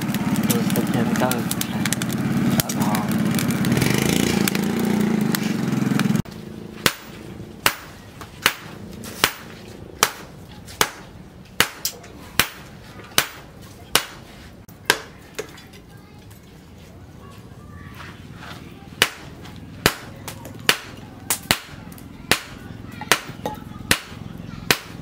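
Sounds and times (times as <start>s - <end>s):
steady mechanical drone: 0.0s - 10.4s
hammer striking steel on anvil: 6.8s - 11.0s, 11.6s - 13.4s, 22.3s - 25.0s.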